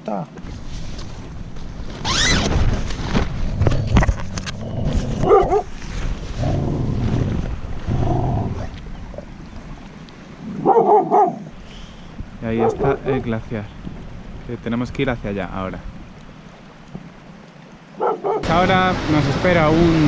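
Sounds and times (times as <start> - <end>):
tent door zip pulled open: 1.9 - 5.6.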